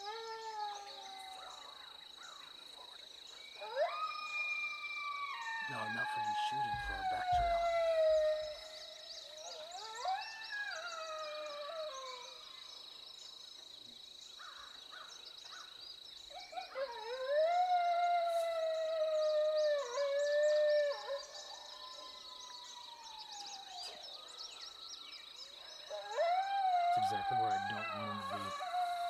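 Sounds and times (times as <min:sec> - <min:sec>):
coyote howling: 0:00.0 - 0:01.6, 0:03.6 - 0:12.5, 0:16.3 - 0:24.2, 0:25.8 - 0:29.0.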